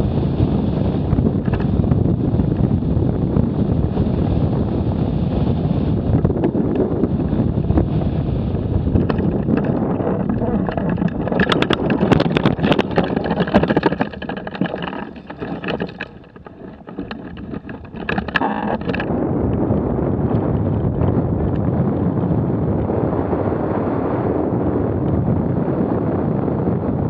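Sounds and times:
wind buffeting microphone: 0:00.0 - 0:27.0
sharp crackling clicks: 0:01.4 - 0:01.8, 0:08.9 - 0:19.6.

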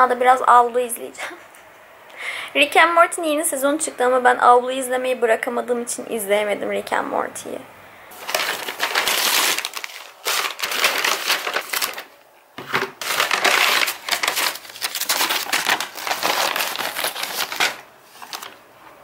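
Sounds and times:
paper bag crinkling and rustling: 0:08.1 - 0:18.7.

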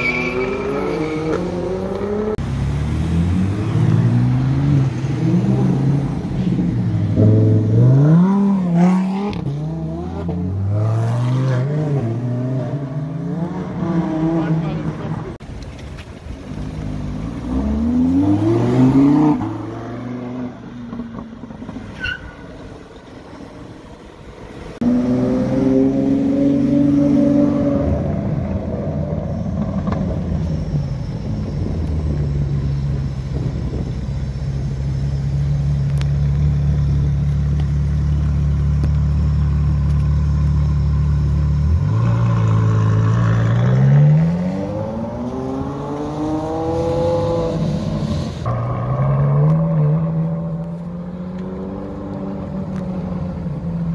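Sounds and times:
car engine revving and accelerating: 0:00.4 - 0:15.4, 0:16.6 - 0:21.7, 0:24.7 - 0:33.9, 0:34.9 - 0:53.9
car engine running at low revs: 0:29.4 - 0:43.1.

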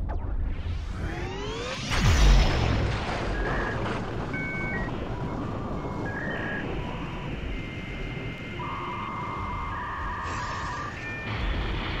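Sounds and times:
low rumbling noise: 0:00.0 - 0:12.0
held synth tones: 0:03.3 - 0:11.4.

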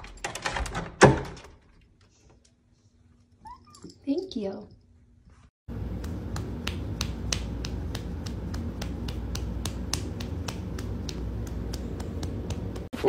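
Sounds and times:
low steady hum: 0:02.7 - 0:13.0
sharp rhythmic clicks: 0:05.7 - 0:12.9.

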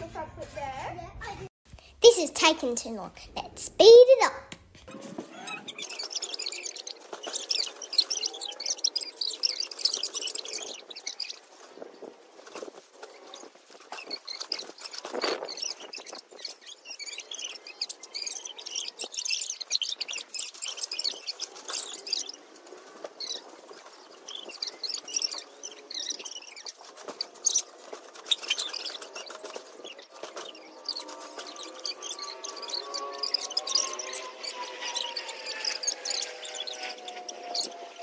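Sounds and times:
sped-up high-pitched chatter: 0:00.0 - 0:08.6.

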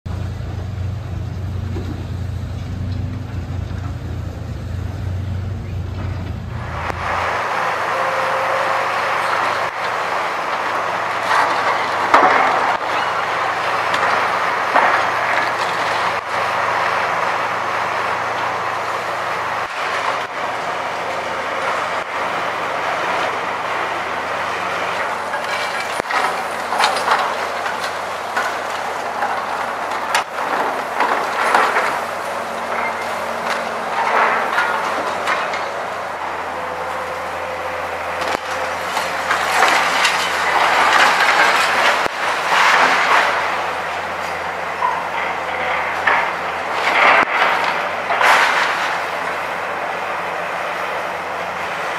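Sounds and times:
engine hum: 0:00.1 - 0:51.9
falling debris: 0:06.6 - 0:51.0
excavator jaw crushing concrete: 0:08.0 - 0:20.4, 0:24.3 - 0:36.0, 0:38.1 - 0:49.5.

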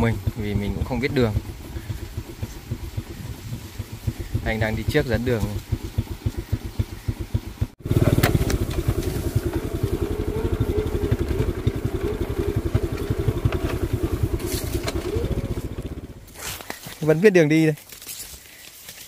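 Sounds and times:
motorbike engine running: 0:00.0 - 0:17.0.

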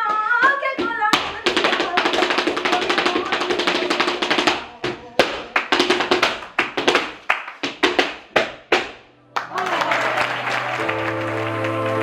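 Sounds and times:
hands clapping: 0:05.2 - 0:12.0.

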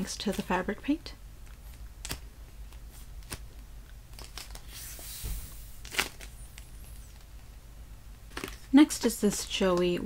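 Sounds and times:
painted foam toy crackling: 0:00.0 - 0:05.0, 0:05.8 - 0:07.5.

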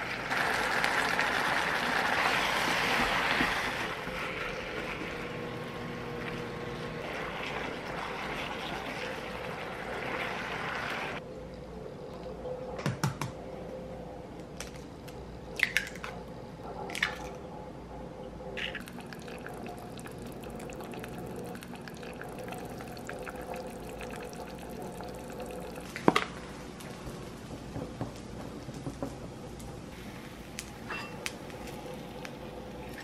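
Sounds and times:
steady low hum: 0:11.2 - 0:33.0.

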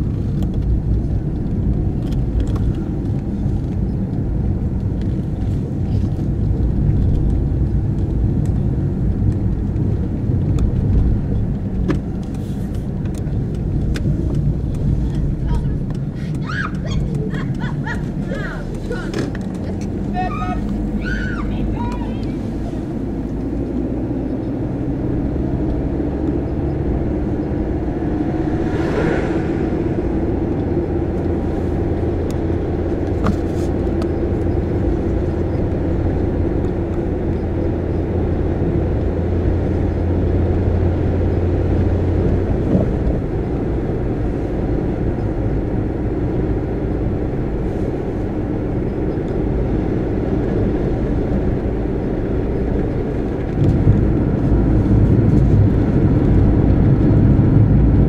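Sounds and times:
car engine: 0:00.0 - 0:58.0
low hum: 0:00.0 - 0:58.0.

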